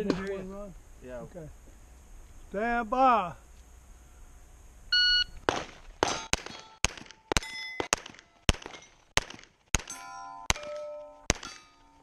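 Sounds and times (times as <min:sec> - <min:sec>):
pistol shots: 0:05.4 - 0:11.7
steel plates ringing: 0:09.9 - 0:12.0.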